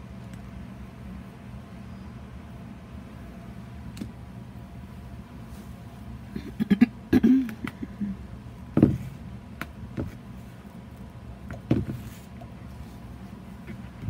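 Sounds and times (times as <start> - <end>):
steady low hum: 0.0 - 14.0
thumps and knocks on tabletop: 8.8 - 9.1.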